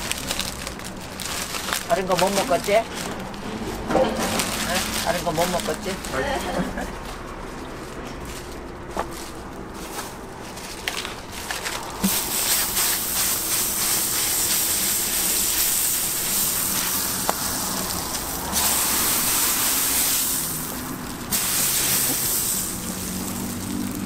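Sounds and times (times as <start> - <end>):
fat sizzling on a griddle: 12.0 - 24.0.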